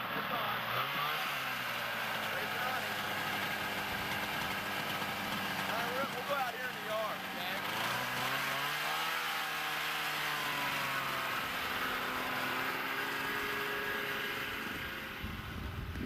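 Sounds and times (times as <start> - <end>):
snowmobile engine passing: 0.0 - 15.8
wind rumble on microphone: 15.2 - 16.0.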